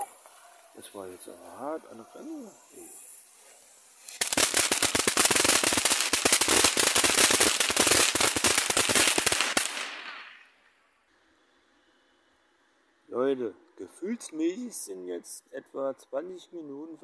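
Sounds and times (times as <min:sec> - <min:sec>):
firework crackling snaps: 0:00.0 - 0:10.8.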